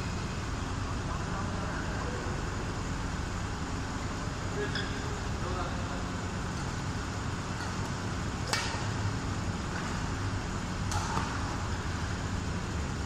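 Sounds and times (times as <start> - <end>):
hall background hum: 0.0 - 13.0
racket striking shuttlecock: 7.6 - 9.0, 10.8 - 11.6.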